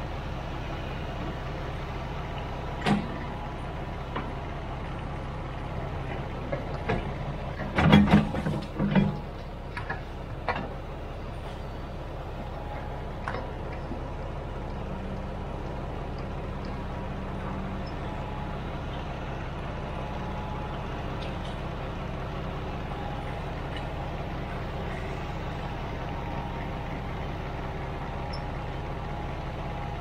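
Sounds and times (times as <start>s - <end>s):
engine running: 0.0s - 30.0s
knocks and clunks: 2.8s - 3.2s, 6.5s - 10.8s.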